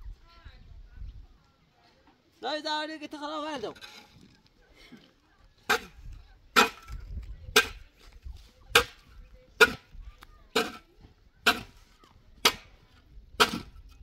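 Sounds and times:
hand tool striking a mud roof: 11.4s - 11.8s, 12.4s - 12.8s, 13.4s - 14.0s.

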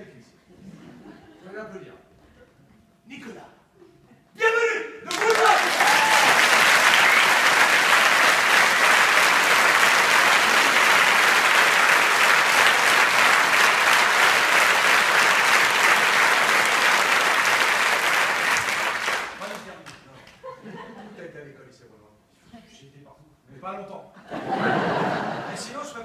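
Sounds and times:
audience applauding: 5.1s - 20.0s.

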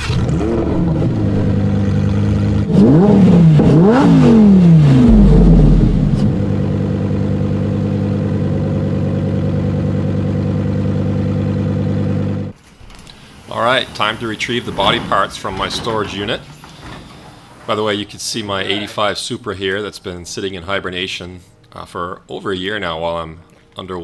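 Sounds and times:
sports car engine idling and revving: 0.0s - 12.6s.

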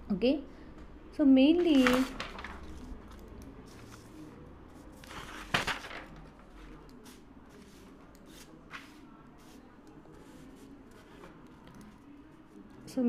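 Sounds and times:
paper crackle: 1.6s - 4.2s, 5.0s - 9.0s
paper rustling: 1.6s - 12.6s.

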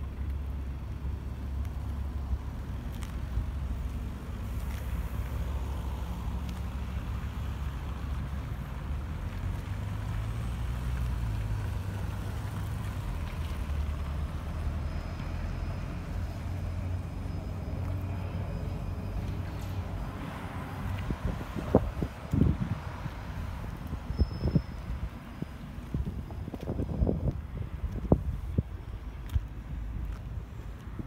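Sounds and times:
road traffic hum: 0.0s - 31.0s
wind buffeting microphone: 20.8s - 30.2s.

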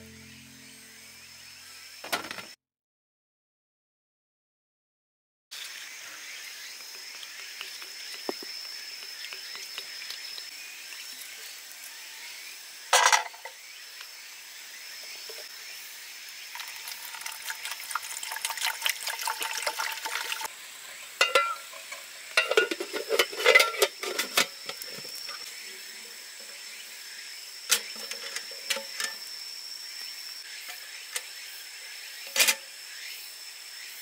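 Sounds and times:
water pouring into metal tin: 16.5s - 20.5s
metal tin and lid clinking: 21.2s - 25.1s, 27.7s - 29.2s, 32.3s - 32.6s.

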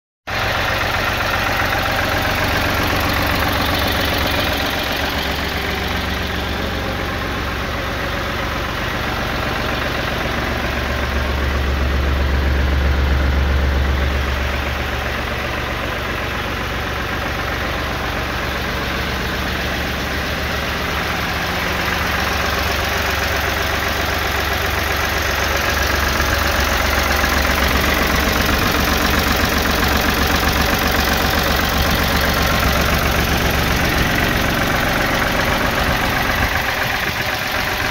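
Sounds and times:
tractor engine idling: 0.3s - 37.9s.

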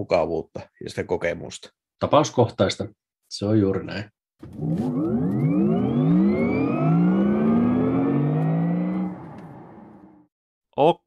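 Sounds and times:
car accelerating: 4.5s - 10.3s.

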